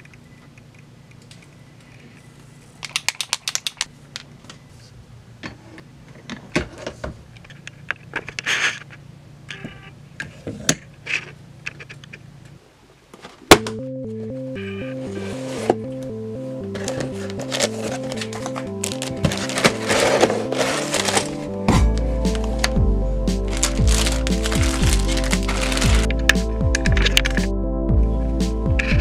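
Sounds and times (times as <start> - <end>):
low steady hum: 13.5 - 29.0.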